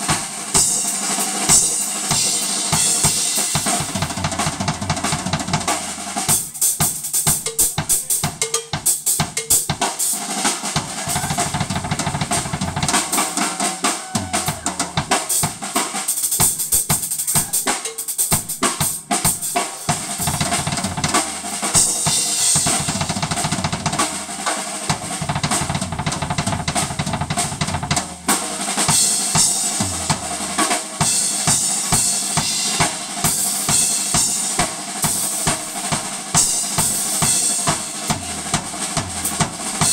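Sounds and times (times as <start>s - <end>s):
drum kit steady beat: 0.0s - 39.9s
live electric blues band: 10.9s - 24.6s.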